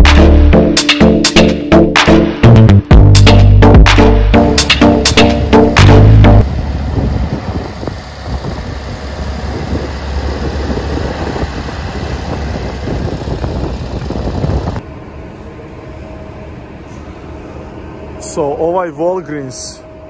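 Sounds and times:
traffic rumble: 0:04.9 - 0:18.9
steady background hum: 0:06.4 - 0:20.0.

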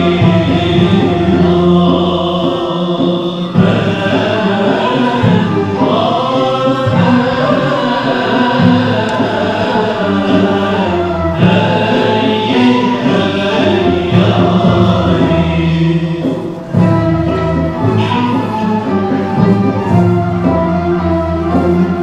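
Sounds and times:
chorus chanting long notes: 0:00.0 - 0:22.0.

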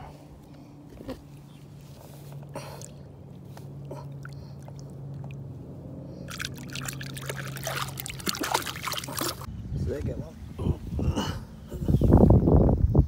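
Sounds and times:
steady low hum: 0:00.0 - 0:13.0
water splashing and trickling: 0:03.7 - 0:05.5, 0:06.1 - 0:09.5.

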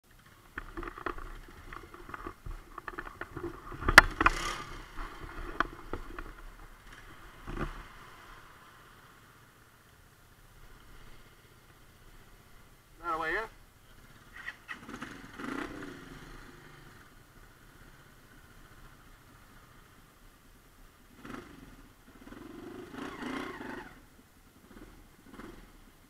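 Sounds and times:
handling noise on camera microphone: 0:00.5 - 0:07.9.

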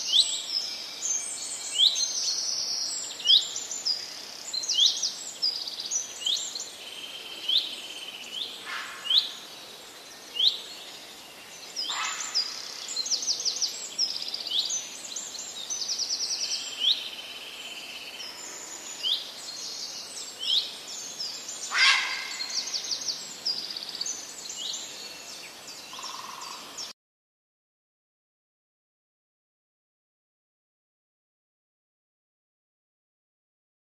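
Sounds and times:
songbirds chirping: 0:00.0 - 0:27.0.

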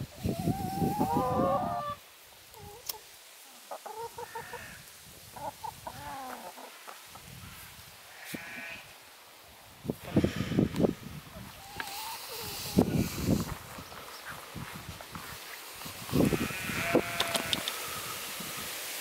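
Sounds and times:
hens clucking: 0:00.2 - 0:07.4, 0:10.0 - 0:14.4, 0:15.8 - 0:18.0.

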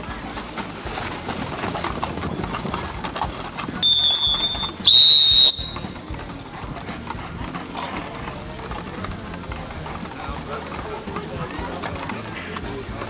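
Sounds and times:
referee's whistle blasts: 0:03.8 - 0:05.9.

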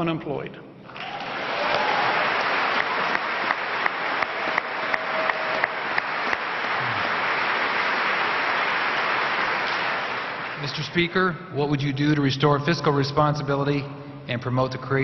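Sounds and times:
sharp nearby claps: 0:01.0 - 0:10.7
audience applauding: 0:01.0 - 0:11.2.

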